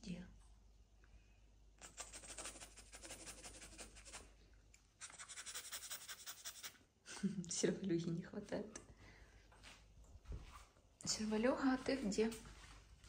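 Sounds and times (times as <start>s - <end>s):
fast scratching: 1.8s - 4.3s, 5.0s - 6.8s.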